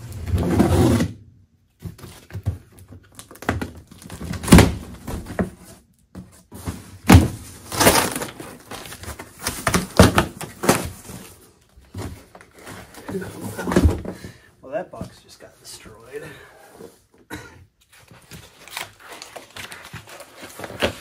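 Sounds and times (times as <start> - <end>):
cardboard thumps: 1.8 - 14.4
cardboard box being torn open: 7.6 - 10.9.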